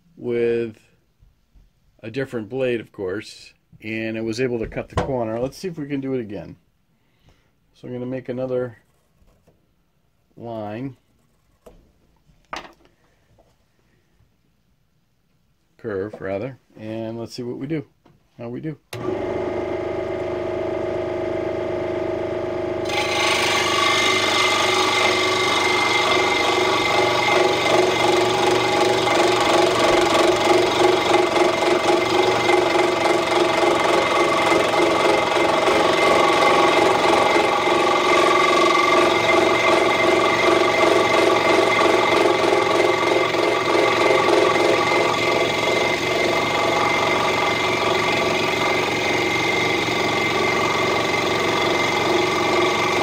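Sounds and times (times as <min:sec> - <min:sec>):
scroll saw cutting wood: 0:19.0 - 0:22.0, 0:22.8 - 0:53.0.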